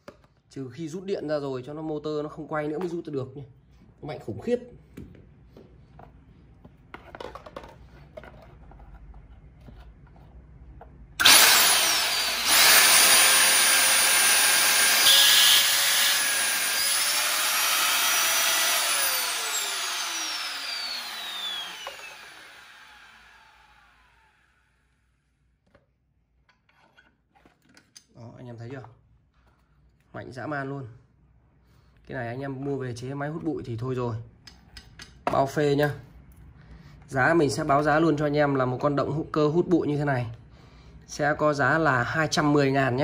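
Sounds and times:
vacuum cleaner motor whine: 11.2 - 24.6.

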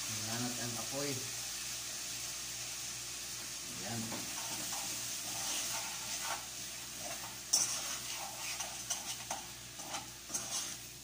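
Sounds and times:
frying sizzle: 0.0 - 11.0
utensil scraping a pot: 4.2 - 11.0.

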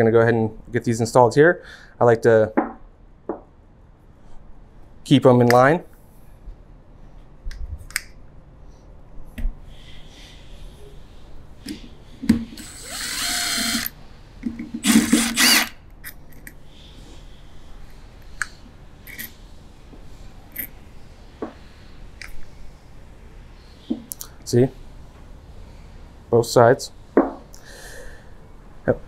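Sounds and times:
power drill spinning: 12.5 - 14.0, 14.8 - 15.8.

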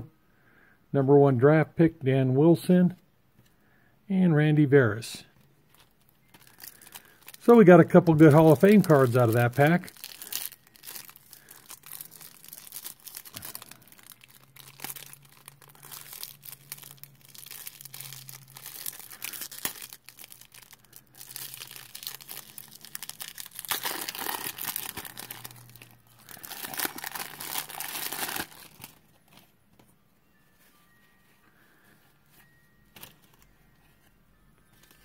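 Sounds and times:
paper wrapper crinkling and tearing: 5.4 - 29.8, 31.7 - 35.0.

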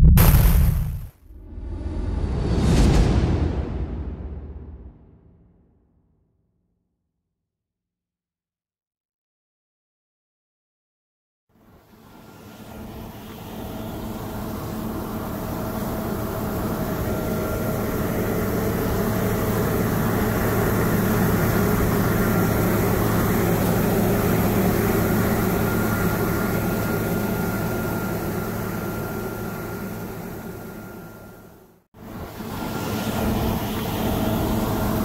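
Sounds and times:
combine harvester droning: 11.9 - 35.0.

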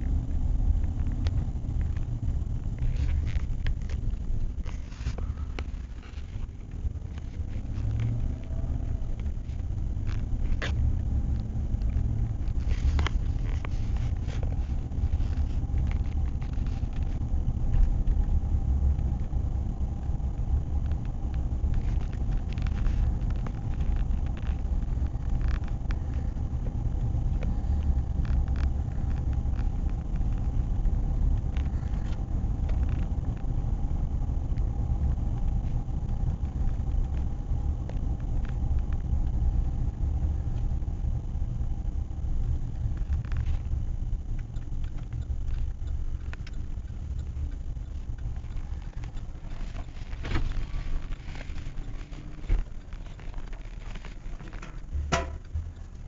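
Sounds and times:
car engine: 0.0 - 56.0
tyre and road noise: 0.0 - 56.0
faint clicks: 42.4 - 56.0.

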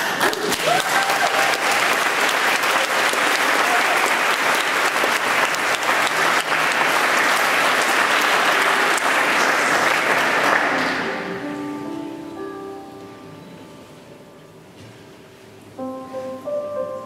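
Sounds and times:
congregation applauding: 0.0 - 11.6
soft instrumental music: 10.8 - 15.0, 15.6 - 17.0.

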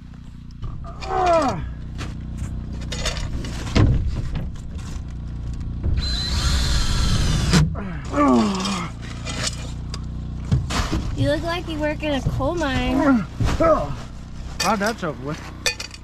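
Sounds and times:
cordless drill driving a screw: 6.0 - 7.6.

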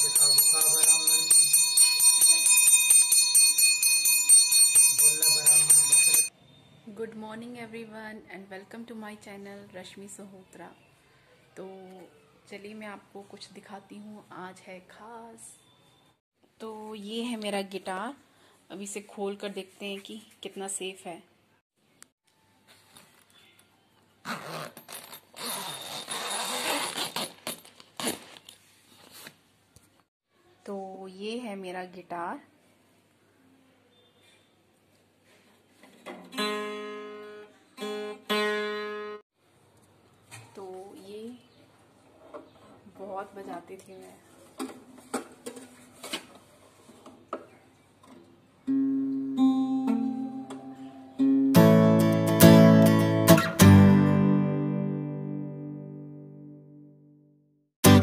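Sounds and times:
zipper being pulled open: 24.2 - 28.6
strummed guitar chord: 48.7 - 56.8
plucked guitar notes: 48.7 - 57.0.

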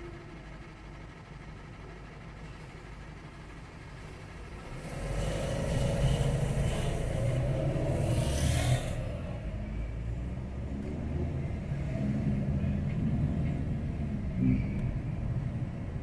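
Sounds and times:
bus driving past: 0.0 - 16.0
car engine humming: 4.0 - 16.0.

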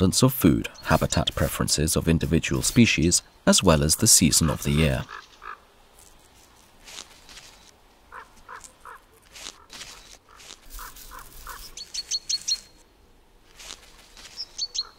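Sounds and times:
sharp high bird chirps: 11.4 - 12.8.

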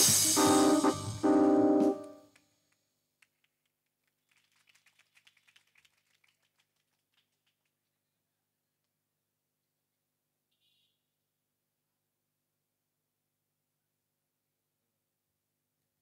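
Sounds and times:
electronic keyboard chords: 0.0 - 2.3.

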